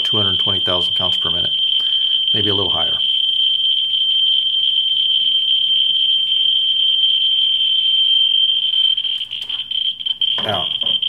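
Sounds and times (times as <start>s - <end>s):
geiger counter high-pitched whine: 0.0s - 11.0s.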